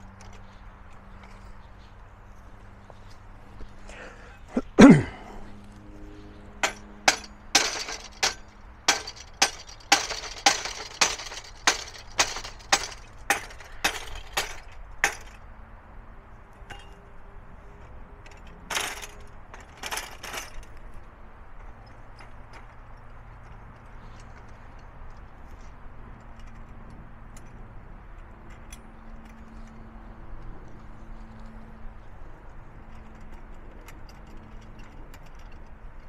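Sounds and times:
sharp ringing knocks: 0:06.6 - 0:15.4.

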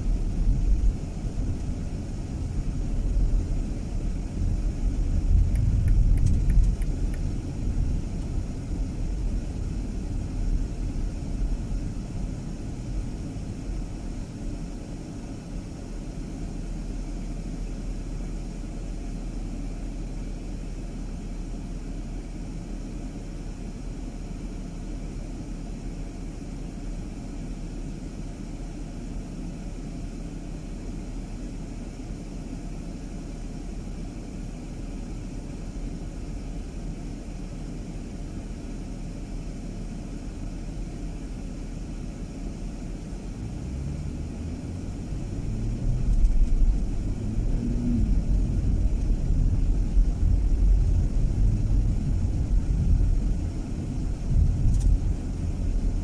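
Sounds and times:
road and engine rumble: 0:00.0 - 0:56.0
low hum rising in pitch: 0:43.4 - 0:56.0.

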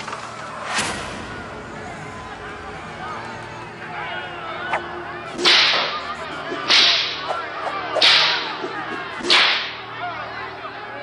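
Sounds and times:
whip cracks: 0:05.4 - 0:09.8.

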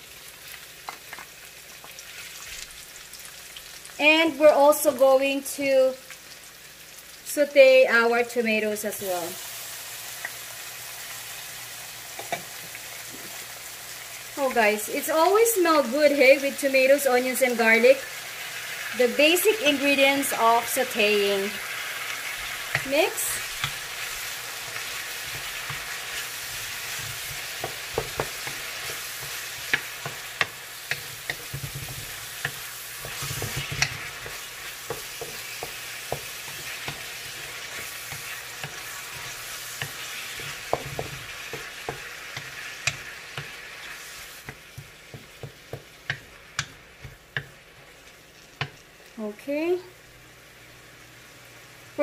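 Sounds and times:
vegetables sizzling in oil: 0:00.0 - 0:52.0
utensil scraping pan: 0:22.3 - 0:44.6.

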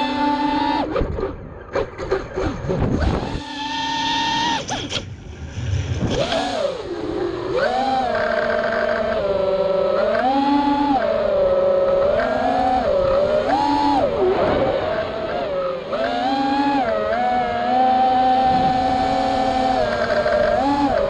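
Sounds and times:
drone motors whining: 0:00.0 - 0:21.0
wind noise and crackle: 0:00.9 - 0:03.4, 0:04.7 - 0:06.6, 0:18.4 - 0:21.0.

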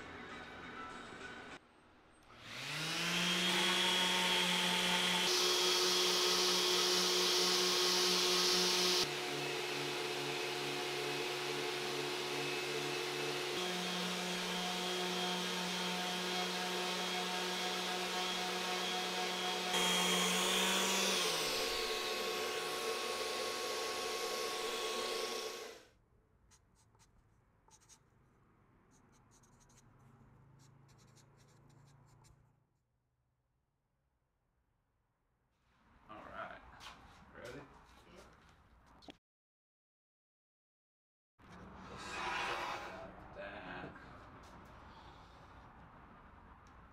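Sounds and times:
orbital sander running: 0:02.4 - 0:25.8
marker scratching on wood: 0:26.5 - 0:28.1, 0:28.9 - 0:32.5.

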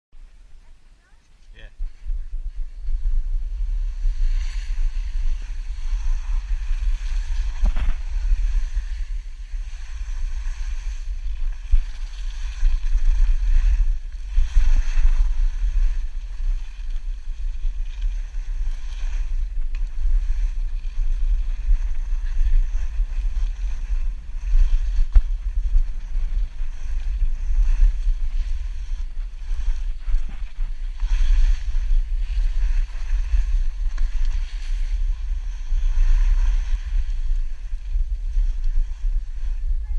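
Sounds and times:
wind rumbling on microphone: 0:00.1 - 0:39.9
skis sliding on packed snow: 0:01.5 - 0:39.9.

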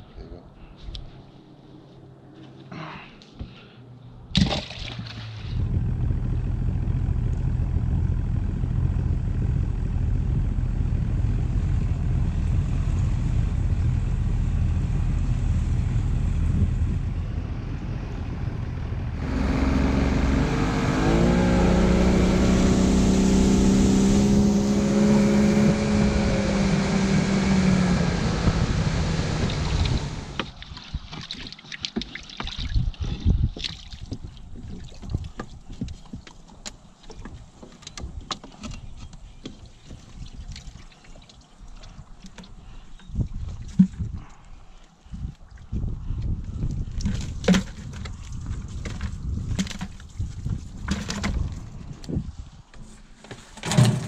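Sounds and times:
boat motor running: 0:05.5 - 0:30.6
wind and water rushing: 0:11.6 - 0:36.3.

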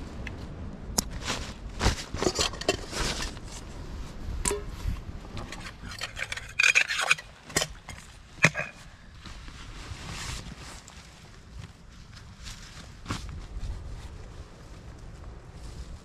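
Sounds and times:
nylon fabric rustling: 0:08.9 - 0:16.0.

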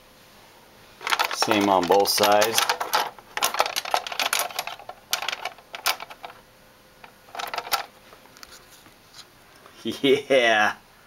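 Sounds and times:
toy train car clicking on track: 0:01.0 - 0:06.4, 0:07.0 - 0:07.9.

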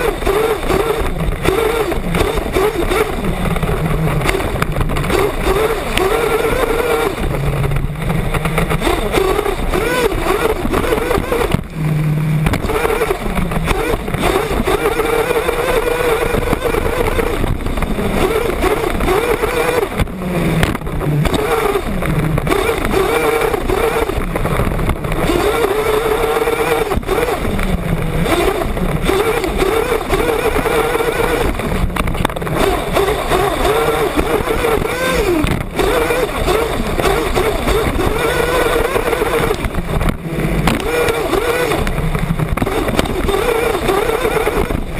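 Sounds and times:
small engine revving: 0:00.0 - 0:44.9.

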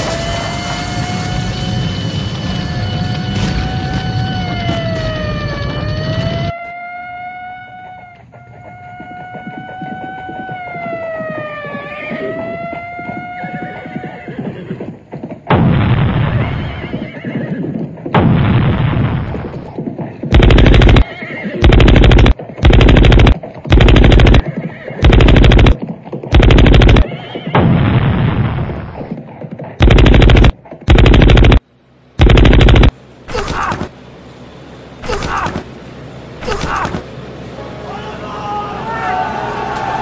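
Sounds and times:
horse whinnying: 0:11.6 - 0:14.9, 0:16.4 - 0:17.8, 0:20.8 - 0:21.7, 0:24.2 - 0:25.1, 0:26.7 - 0:27.6
long noisy sound: 0:18.2 - 0:29.0, 0:29.8 - 0:40.0
machine-gun fire: 0:20.3 - 0:29.1, 0:29.8 - 0:31.6, 0:32.2 - 0:33.9.

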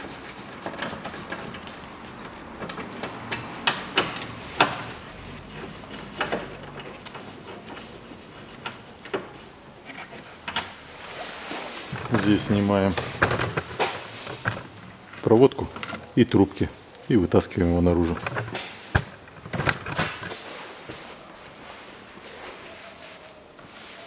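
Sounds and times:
plastic duct being handled: 0:04.9 - 0:16.2.

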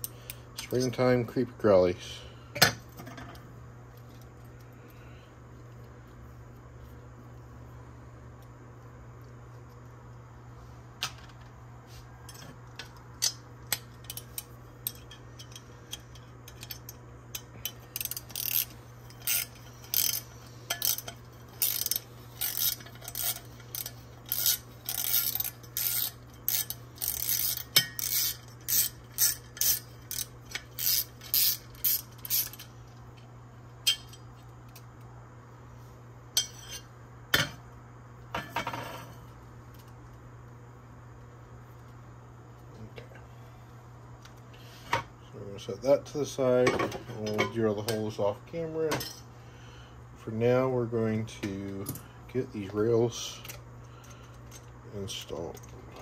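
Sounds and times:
hand tool scraping metal: 0:17.8 - 0:32.6.

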